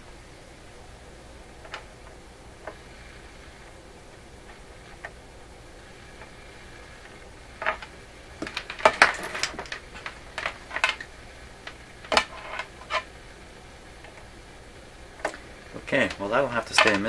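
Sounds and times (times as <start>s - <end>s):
faint steady hum: 0.0s - 17.0s
small hard objects clattering: 7.0s - 13.1s, 15.2s - 17.0s.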